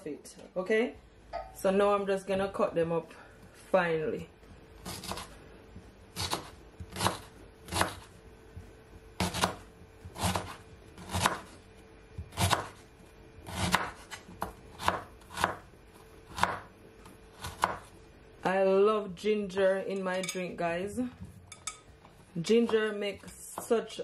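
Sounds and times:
knife slicing ginger: 4.8s - 5.3s, 6.2s - 8.1s, 9.2s - 11.6s, 12.2s - 12.8s, 13.4s - 15.6s, 17.4s - 17.8s.

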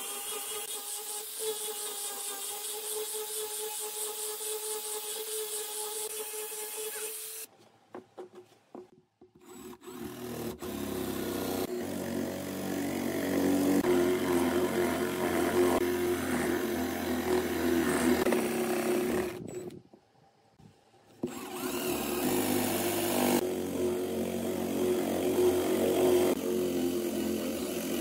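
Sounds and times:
electric drill boring into wood: 9.4s - 19.8s, 21.2s - 28.0s.

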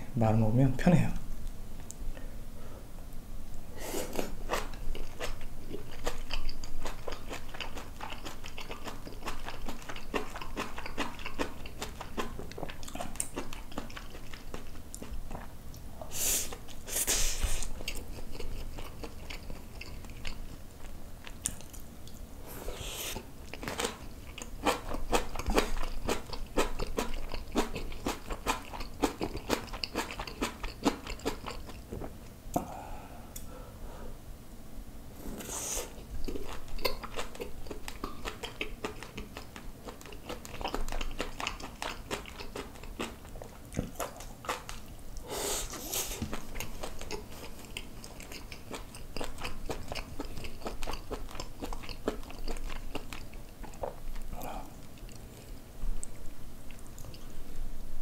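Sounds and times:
wet chewing and mouth clicks: 4.1s - 15.8s, 17.4s - 22.2s, 23.0s - 32.4s, 35.9s - 57.3s
brief hissing noises: 16.1s - 17.7s, 22.6s - 23.2s, 35.3s - 36.0s.

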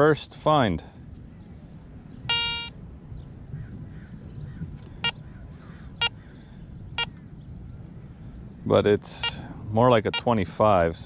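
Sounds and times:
metal detector beeps: 2.3s - 2.8s, 9.2s - 9.5s, 10.1s - 10.4s.

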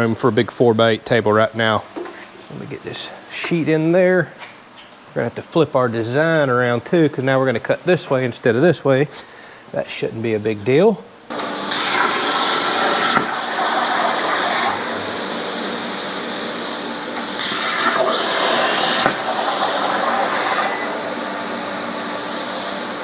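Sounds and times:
plasma cutter hissing: 11.3s - 23.0s.

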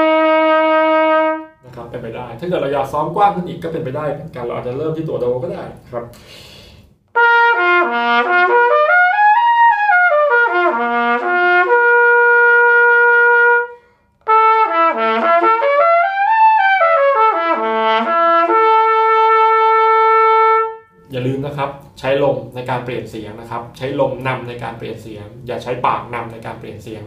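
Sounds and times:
trumpet playing lip slurs: 0.0s - 1.6s, 7.1s - 21.1s
breath: 6.1s - 7.0s, 13.8s - 14.2s.

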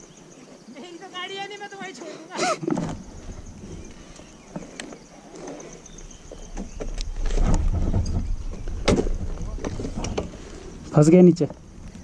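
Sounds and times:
motorcycle low rumble: 5.8s - 12.0s.

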